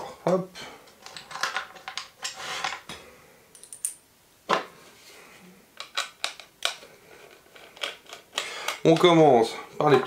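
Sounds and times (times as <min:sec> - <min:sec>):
plastic parts clicking: 0:05.8 - 0:09.2.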